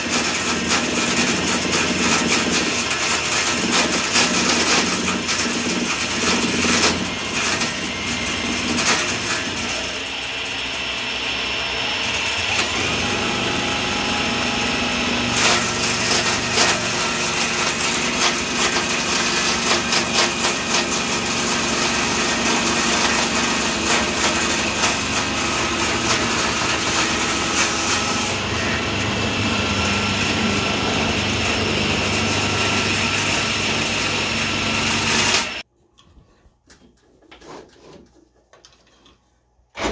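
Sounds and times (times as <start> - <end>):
table saw cutting wood: 0.0 - 35.7
cordless drill motor running: 4.9 - 20.2, 21.0 - 35.6.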